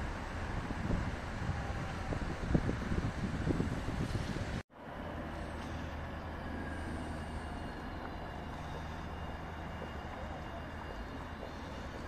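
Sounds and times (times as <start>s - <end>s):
wind rumble on microphone: 0.0s - 4.6s
city traffic hum: 0.0s - 12.0s
distant tram approaching: 0.0s - 12.0s.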